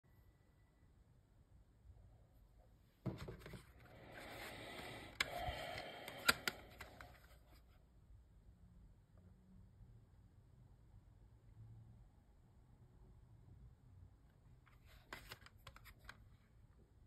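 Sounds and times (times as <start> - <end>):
plastic case clicks: 5.2 - 7.1.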